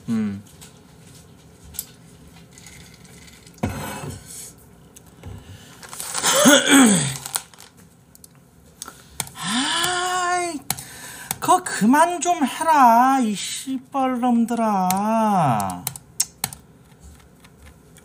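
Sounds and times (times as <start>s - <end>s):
man yawning: 9.4s - 10.2s
drawn-out vocal sound: 9.4s - 10.6s.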